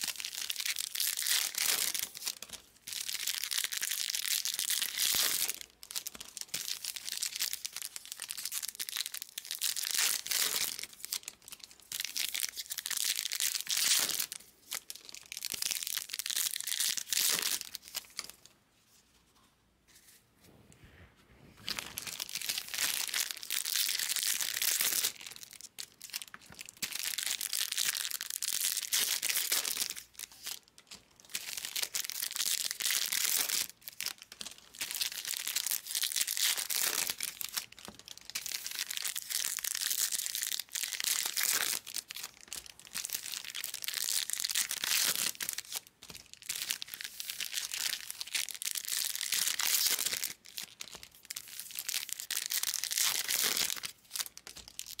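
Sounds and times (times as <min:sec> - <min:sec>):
foil wrappers tearing and crinkling: 0:31.2 - 0:55.0.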